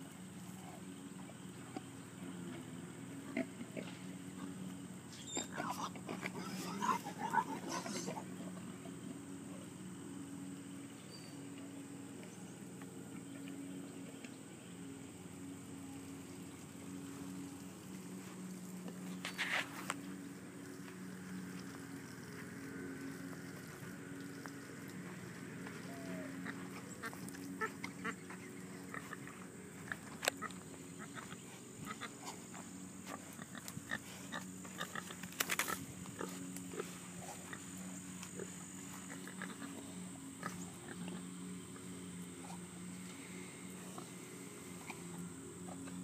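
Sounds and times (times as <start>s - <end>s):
boar grunting: 5.4s - 8.7s.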